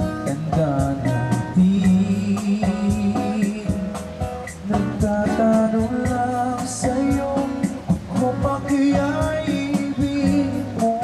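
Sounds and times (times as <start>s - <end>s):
person singing: 0.0s - 11.0s
strummed acoustic guitar: 0.0s - 11.0s.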